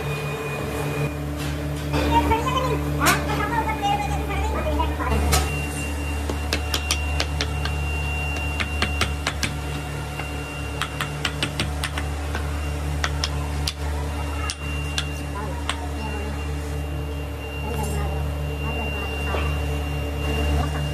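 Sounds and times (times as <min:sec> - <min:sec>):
steady low hum: 0:00.0 - 0:20.9
hammer tapping mould: 0:06.3 - 0:13.8.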